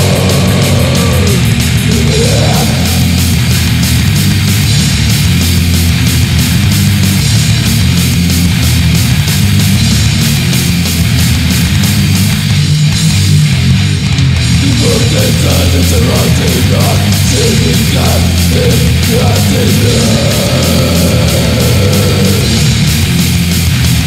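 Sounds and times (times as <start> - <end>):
wavering high guitar or vocal: 0.0 - 3.4, 14.6 - 22.9
distorted guitars and bass: 0.0 - 24.0
fast drumming: 0.0 - 24.0.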